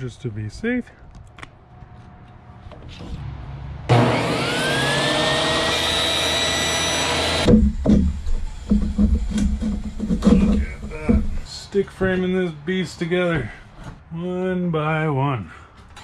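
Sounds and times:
table saw cutting wood: 0:03.9 - 0:10.9
wood knocks: 0:07.5 - 0:11.4.

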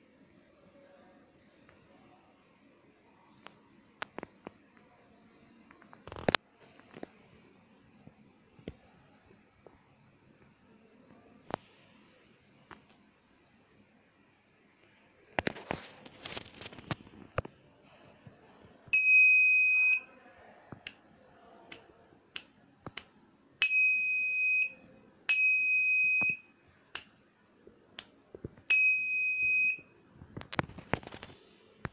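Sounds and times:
electronic buzzer beeping: 0:19.0 - 0:20.1, 0:23.6 - 0:26.4, 0:28.7 - 0:29.9.

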